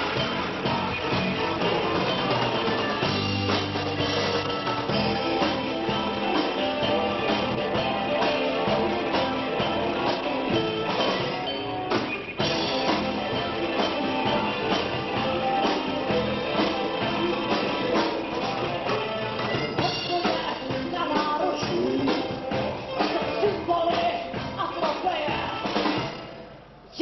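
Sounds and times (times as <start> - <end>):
electric guitar: 0.0 - 26.5
drum kit: 0.0 - 27.0
live rock band: 0.0 - 27.0.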